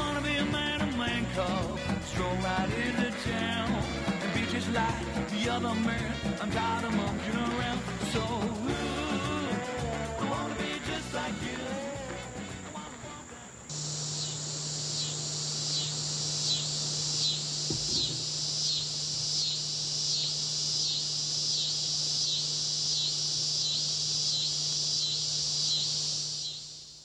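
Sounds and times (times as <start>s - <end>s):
insects pulsing trill: 0.0s - 27.0s
steady low hum: 13.4s - 26.6s.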